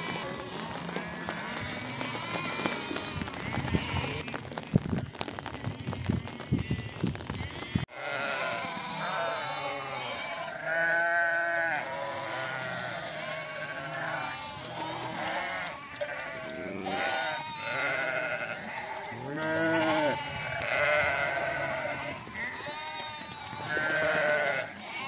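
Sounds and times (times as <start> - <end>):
sheep bleating: 0.0 - 4.4, 5.7 - 25.0.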